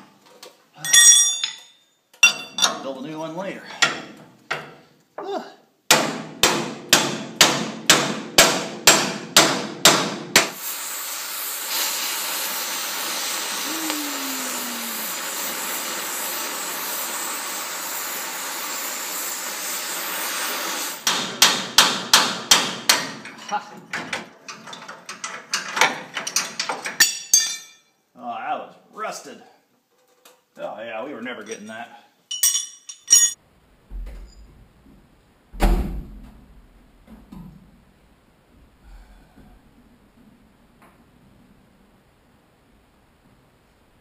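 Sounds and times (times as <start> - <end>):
cutting torch hissing: 10.5 - 21.0.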